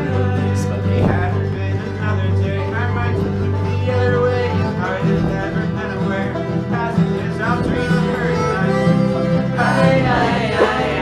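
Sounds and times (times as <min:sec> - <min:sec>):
bluegrass string band playing: 0:00.0 - 0:11.0.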